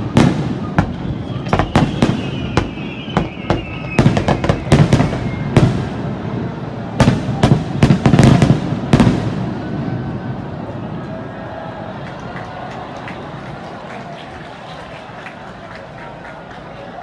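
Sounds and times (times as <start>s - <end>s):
faint wavering high whistle: 0.9s - 5.6s.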